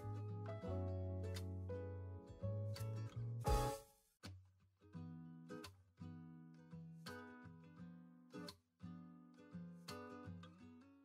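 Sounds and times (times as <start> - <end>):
instrumental background music: 0.0 - 4.0.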